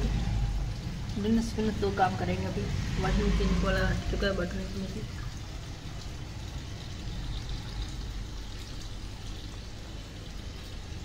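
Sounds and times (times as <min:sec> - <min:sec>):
water pouring into washing machine: 0:00.0 - 0:11.0.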